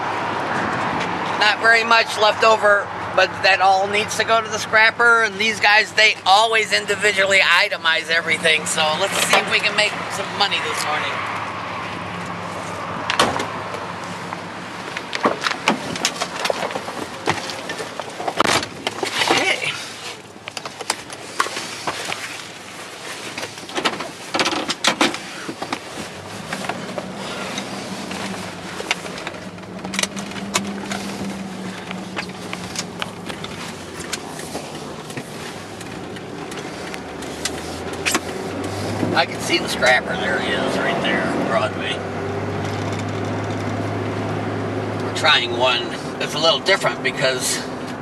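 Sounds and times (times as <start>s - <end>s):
truck engine hum: 0.0s - 48.0s.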